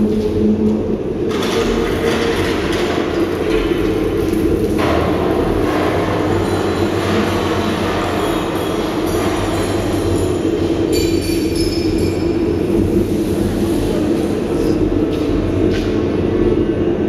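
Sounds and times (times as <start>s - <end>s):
low rumbling drone: 0.0s - 17.0s
faint high ringing tones: 9.4s - 12.8s.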